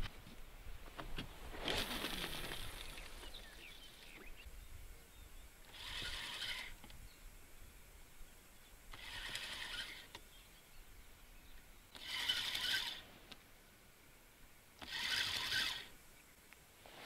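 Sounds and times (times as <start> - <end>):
fishing reel whirring: 5.6 - 6.9, 8.9 - 10.2, 11.9 - 13.0, 14.8 - 16.0.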